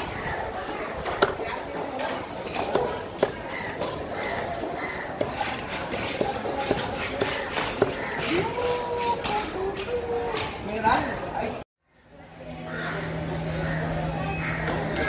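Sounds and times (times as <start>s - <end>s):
knife chopping on wooden block: 5.2s - 9.4s.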